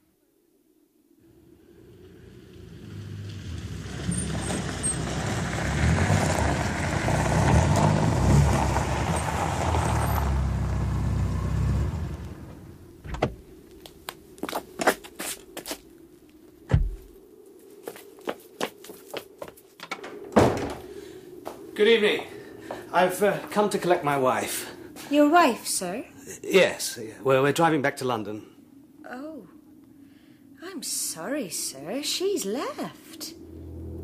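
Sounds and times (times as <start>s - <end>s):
car engine rumble: 1.3s - 13.8s, 33.3s - 34.0s.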